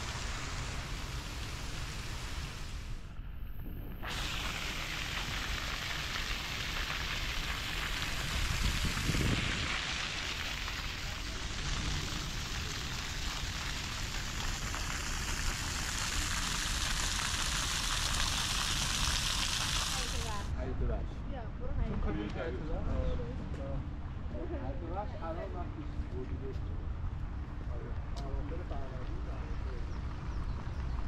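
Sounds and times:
fountain jets spraying: 0.0 - 3.0, 4.0 - 20.5
rain on wet paving: 0.0 - 3.0, 4.1 - 20.5
low rumble: 7.5 - 16.4.

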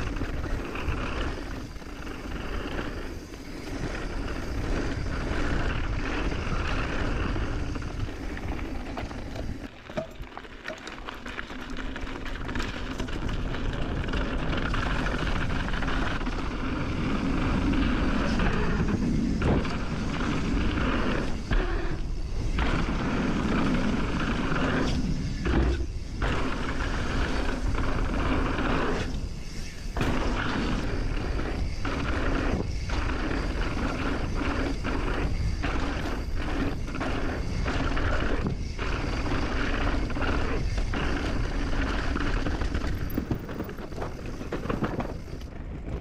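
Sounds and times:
bike rattling: 0.0 - 46.0
tyre noise on dirt: 0.0 - 46.0.

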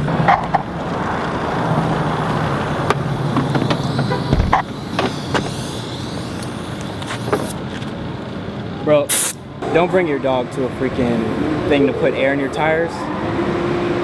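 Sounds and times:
motor humming: 2.8 - 7.6
sharp clicks and knocks: 2.9 - 5.5
thump: 3.4 - 5.5.

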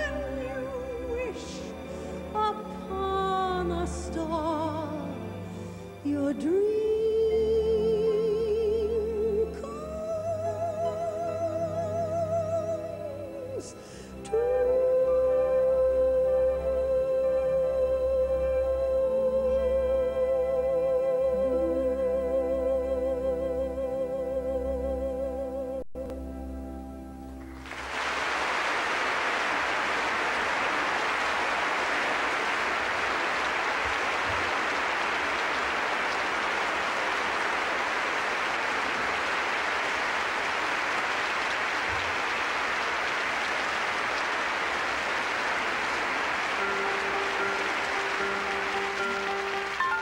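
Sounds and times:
audience applauding: 27.5 - 50.0
soft piano playing: 46.0 - 50.0.

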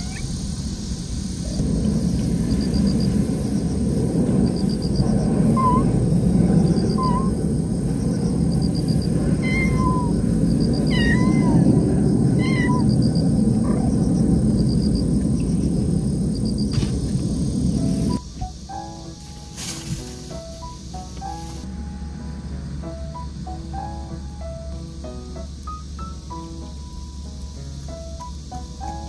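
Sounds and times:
cat meowing: 0.0 - 0.3, 5.6 - 6.0, 6.6 - 7.4, 9.3 - 14.1
low background noise: 0.0 - 29.0.

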